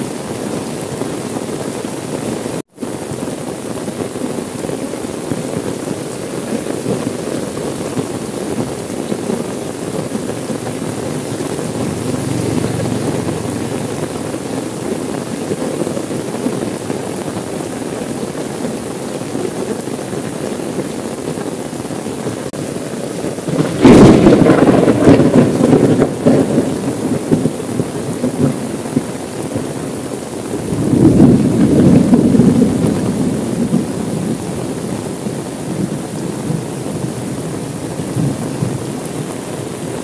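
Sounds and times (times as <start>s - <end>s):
rain pattering on car window: 0.1s - 40.0s
thunderclap rumbling: 6.4s - 20.7s, 22.9s - 39.4s.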